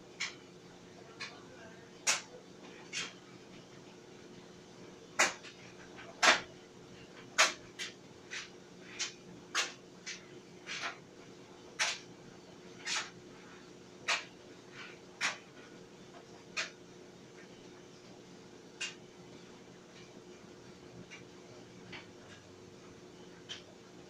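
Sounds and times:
clothes dryer motor hum: 0:00.0 - 0:24.0.

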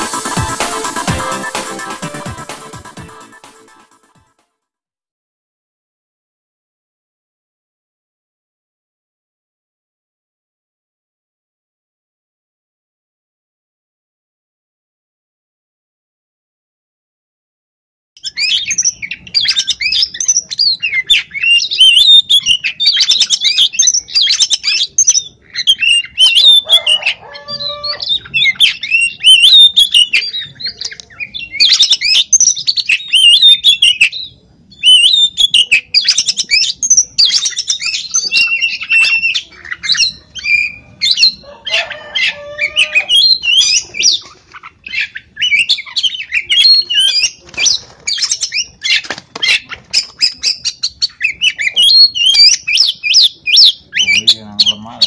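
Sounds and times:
lower-pitched bird call: 0:18.2 - 0:34.2, 0:34.8 - 0:44.2
bird singing whistled phrases: 0:18.2 - 0:41.4, 0:42.0 - 0:44.2, 0:44.9 - 0:55.0.

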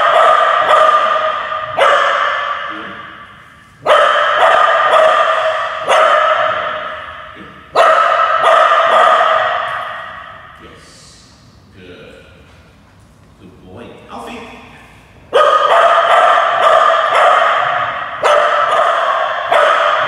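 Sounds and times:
dog barking with echo: 0:00.0 - 0:10.6, 0:15.3 - 0:20.0.

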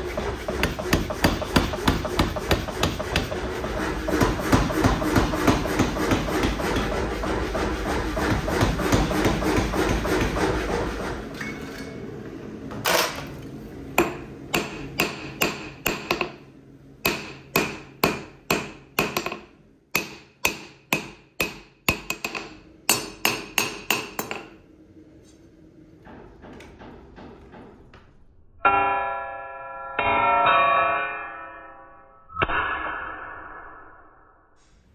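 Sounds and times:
power hammer pounding: 0:00.0 - 0:11.3, 0:13.9 - 0:24.6.

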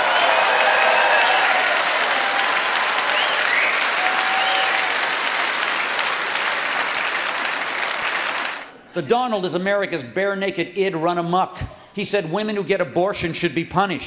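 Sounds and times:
large audience applauding: 0:00.0 - 0:08.7.

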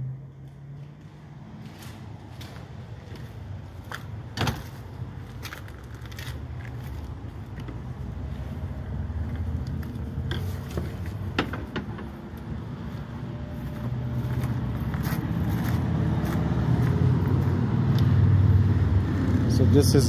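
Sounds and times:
footsteps on gravel: 0:01.0 - 0:08.6, 0:12.8 - 0:18.1.

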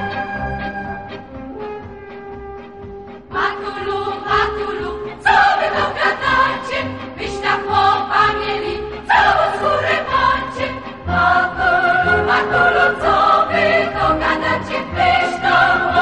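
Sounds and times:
choir singing: 0:03.3 - 0:16.0.

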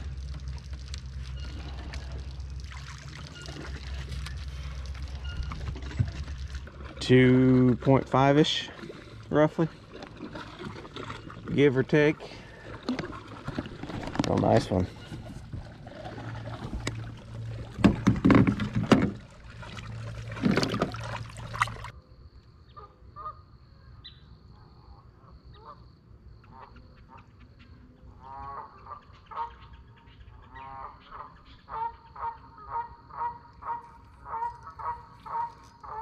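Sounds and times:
low steady hum: 0:00.0 - 0:25.4
goose honking: 0:05.0 - 0:06.0, 0:28.2 - 0:29.8, 0:30.4 - 0:36.0
thumps and rustles: 0:17.7 - 0:19.3.

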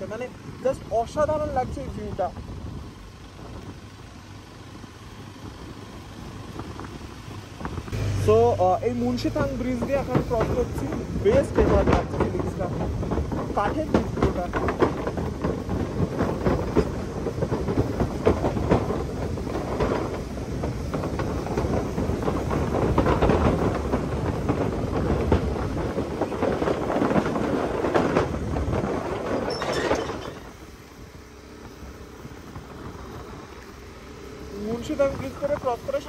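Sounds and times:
motorcycle riding: 0:00.0 - 0:36.0
wooden bridge planks clattering: 0:09.0 - 0:31.2.

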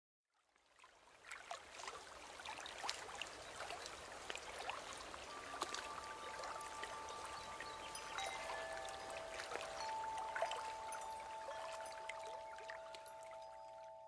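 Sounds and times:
babbling water: 0:02.7 - 0:14.0
long held musical tones: 0:05.2 - 0:14.0.

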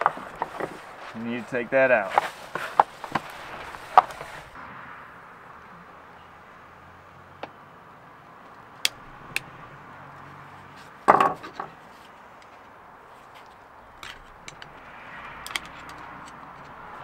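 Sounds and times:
pliers clattering on wooden decking: 0:11.0 - 0:11.8, 0:13.4 - 0:14.8, 0:15.4 - 0:16.8.

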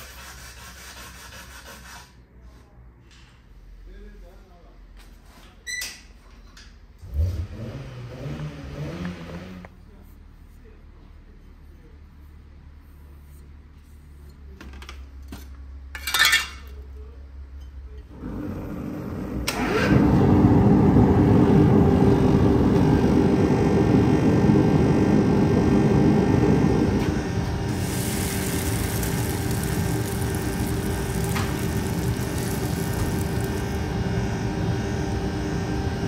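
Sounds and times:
forge fire roaring: 0:25.4 - 0:34.8
hot steel sizzling in oil: 0:27.7 - 0:34.0.

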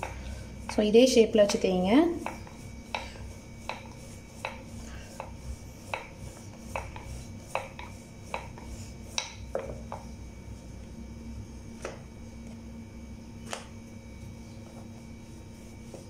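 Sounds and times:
rolling pin rolling dough: 0:00.0 - 0:10.8, 0:13.4 - 0:16.0.

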